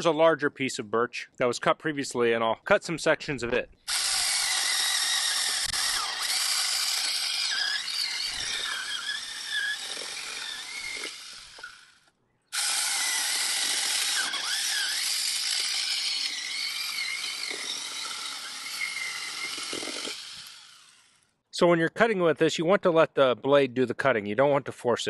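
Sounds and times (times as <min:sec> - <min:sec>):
electric chainsaw cutting wood: 0:03.9 - 0:21.3.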